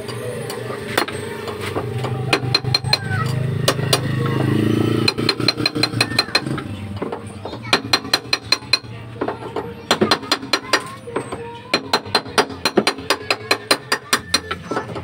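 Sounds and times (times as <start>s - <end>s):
engine droning: 0.0s - 7.4s
sharp metallic taps: 1.0s - 14.6s.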